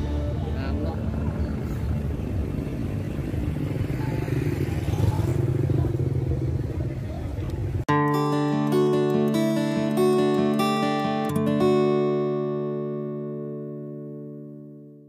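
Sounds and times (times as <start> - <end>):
strummed acoustic guitar music: 0.0 - 2.9, 7.9 - 15.0
motorcycle engine rumbling: 0.0 - 7.9
street traffic noise: 0.0 - 13.6.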